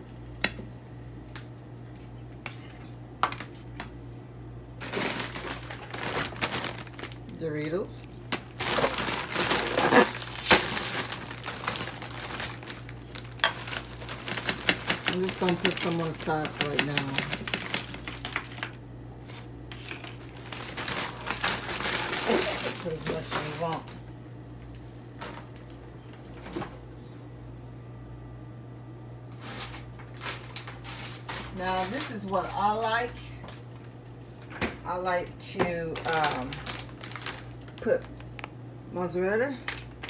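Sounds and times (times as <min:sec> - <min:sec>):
steady low hum: 0:00.0 - 0:40.0
sharp crackle of bag: 0:04.8 - 0:07.2, 0:08.3 - 0:15.1, 0:19.2 - 0:23.9, 0:36.0 - 0:37.7
chip bag crinkling: 0:04.8 - 0:24.1, 0:29.3 - 0:34.5, 0:35.9 - 0:38.5, 0:39.6 - 0:40.0.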